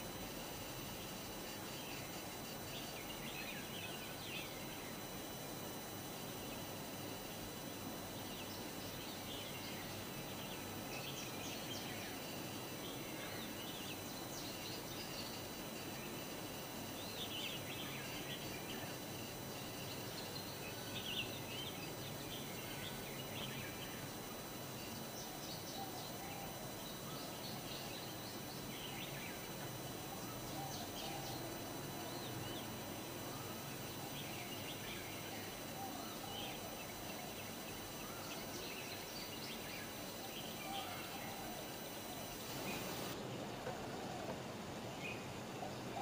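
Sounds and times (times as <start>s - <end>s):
small birds chirping: 34.0s - 43.2s.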